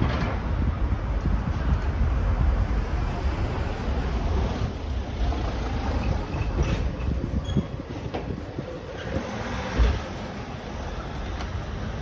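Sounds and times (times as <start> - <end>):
street noise: 0.0 - 12.0
wind buffeting microphone: 0.0 - 12.0.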